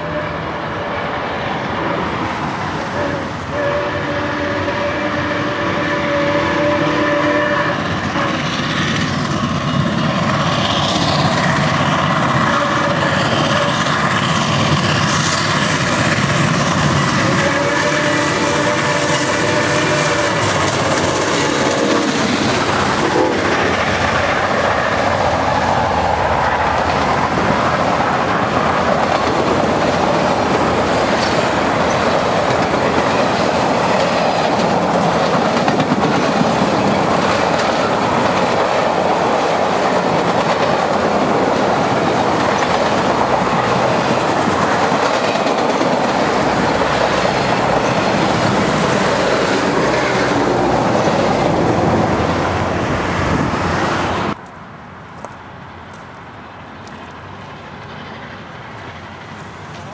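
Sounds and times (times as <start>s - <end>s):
steam locomotive whistle: 0.0s - 2.1s, 2.9s - 8.5s, 12.4s - 13.9s, 17.2s - 22.2s
train wheels rumbling on rails: 0.0s - 59.9s.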